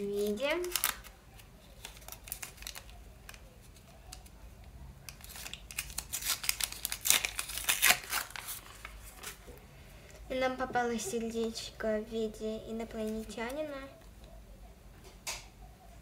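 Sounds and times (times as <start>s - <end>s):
paper rustling and tearing: 0.0s - 4.3s, 5.1s - 9.5s.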